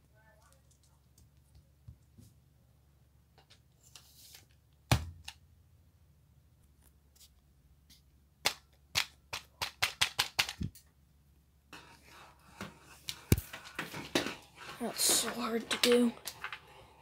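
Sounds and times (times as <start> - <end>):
plastic toy blaster clicks: 9.0 - 10.6.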